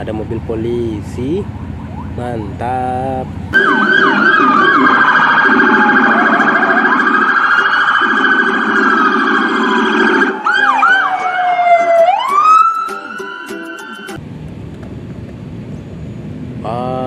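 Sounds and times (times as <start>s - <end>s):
police sirens yelping and wailing: 1.2s - 2.9s, 3.5s - 14.2s.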